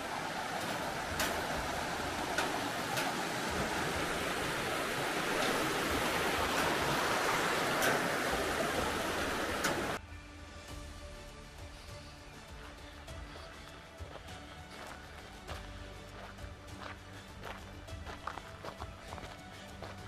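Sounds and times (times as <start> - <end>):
footsteps on metal grating: 0.0 - 9.9, 12.6 - 20.0
river rushing over rapids: 0.0 - 10.0.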